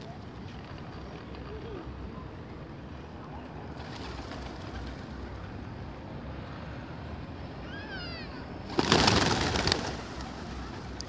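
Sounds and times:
pigeon wings flapping: 0:03.8 - 0:05.2, 0:08.7 - 0:11.0.

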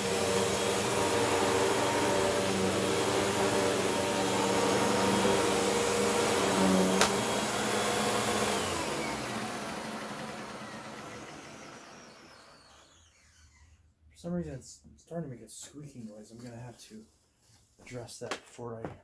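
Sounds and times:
vacuum cleaner running: 0:00.0 - 0:13.2
vacuum switch click: 0:06.9 - 0:07.3.

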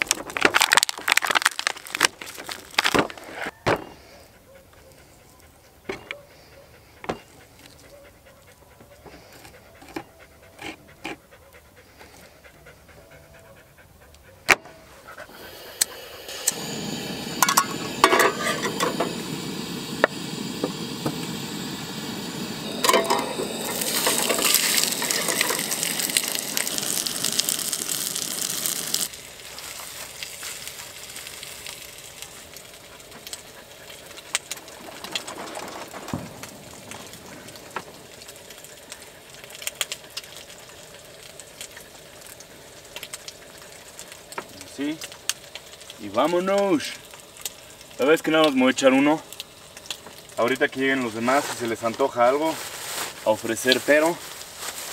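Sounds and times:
gas burner hissing: 0:14.6 - 0:54.9
frying pan sizzling: 0:15.1 - 0:54.9.

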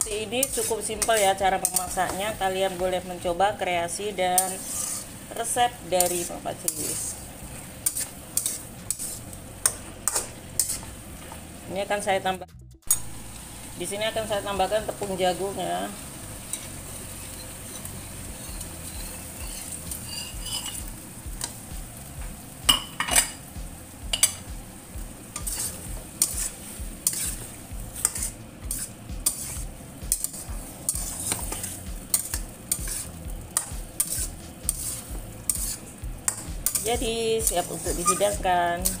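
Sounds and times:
metal spatula scraping a wok: 0:00.0 - 0:03.1, 0:04.1 - 0:11.4, 0:16.4 - 0:21.6, 0:25.3 - 0:39.0
stir-fry sizzling in a wok: 0:00.0 - 0:39.0.

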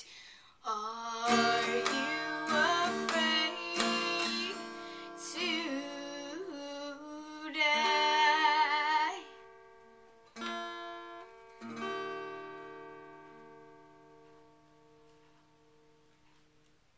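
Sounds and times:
woman singing with vibrato: 0:00.0 - 0:09.4
acoustic guitar strumming: 0:00.9 - 0:16.6.

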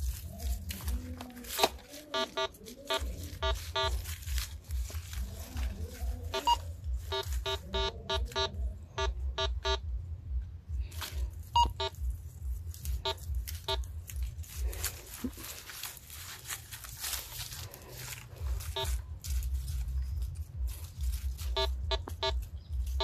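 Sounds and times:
metal detector beeps: 0:01.6 - 0:04.0, 0:06.3 - 0:09.8, 0:11.5 - 0:12.0, 0:18.7 - 0:19.0, 0:21.5 - 0:22.4
low rumble: 0:03.0 - 0:23.0.

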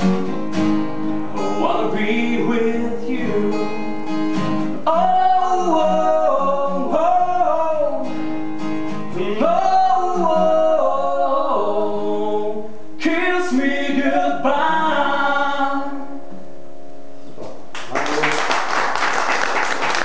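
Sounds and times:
acoustic guitar: 0:00.0 - 0:17.9
man and woman singing: 0:01.4 - 0:04.1, 0:04.8 - 0:08.1, 0:09.1 - 0:16.2
applause: 0:17.7 - 0:20.0.

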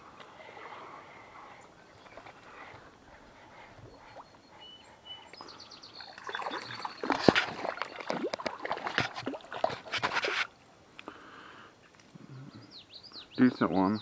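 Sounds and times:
fish splashing at water surface: 0:06.1 - 0:10.5.

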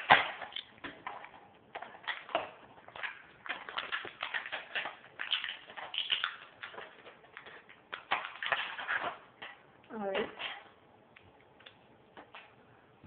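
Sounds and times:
plastic packaging crinkling: 0:00.0 - 0:09.6.

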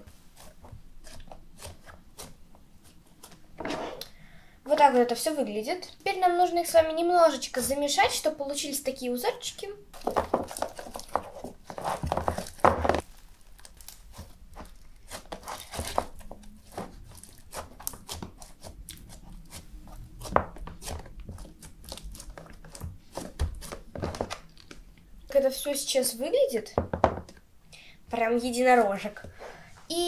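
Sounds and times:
slime crunching and squishing: 0:09.9 - 0:24.9.

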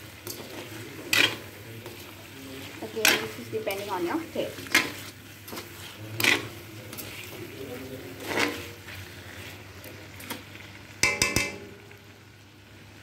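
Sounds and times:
spoon scraping in metal wok: 0:00.0 - 0:10.4
spoon clanking against pan: 0:11.0 - 0:12.0.

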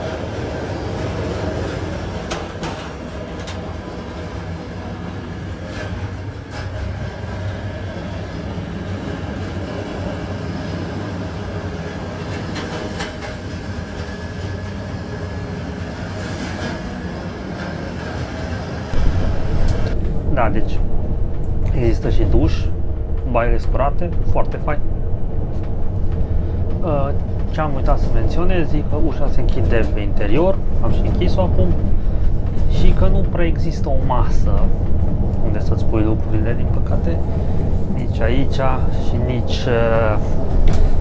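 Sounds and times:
train wheels rumbling on rails: 0:00.0 - 0:41.0
track clicks and knocks: 0:01.2 - 0:04.4.

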